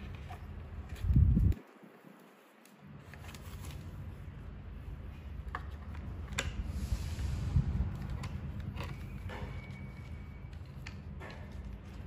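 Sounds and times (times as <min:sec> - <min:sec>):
low steady rumble: 0:03.0 - 0:12.0.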